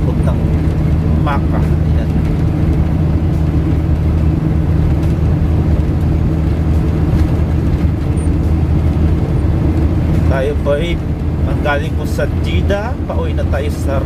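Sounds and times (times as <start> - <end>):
engine and tyre drone inside vehicle: 0.0 - 14.0.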